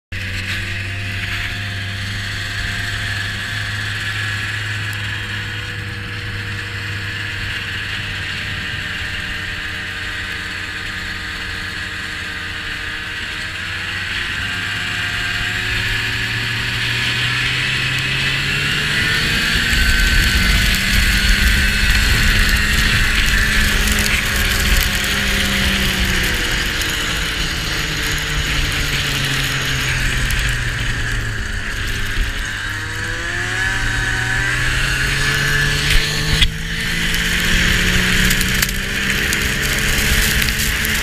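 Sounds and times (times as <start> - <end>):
vehicle engine running: 0.1 - 41.0.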